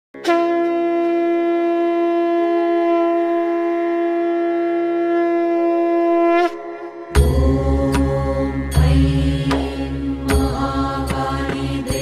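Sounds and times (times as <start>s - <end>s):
long horn note: 0.2s - 7.7s.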